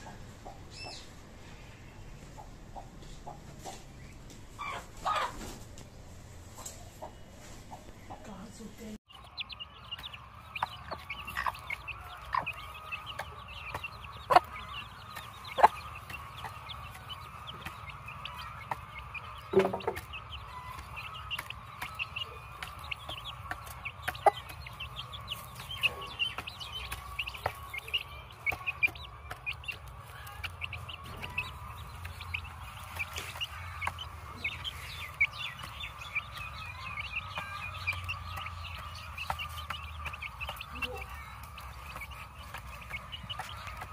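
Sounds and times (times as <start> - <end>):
chickens clucking: 0.0 - 43.9
high chirps: 9.1 - 43.9.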